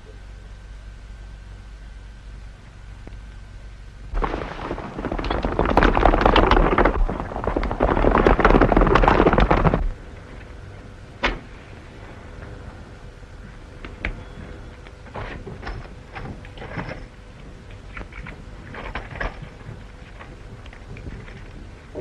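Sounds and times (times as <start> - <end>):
old film soundtrack hum and hiss: 0.0 - 22.0
horses galloping hoofbeats: 4.2 - 10.0, 18.0 - 22.0.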